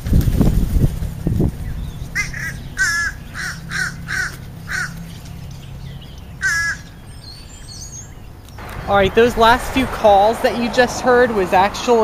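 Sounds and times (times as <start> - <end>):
crow cawing: 2.2 - 5.1, 6.3 - 7.1.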